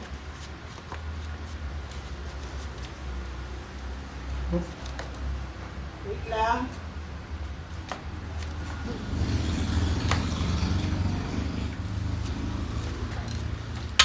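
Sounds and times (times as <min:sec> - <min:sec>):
low engine rumble: 0:06.9 - 0:14.0.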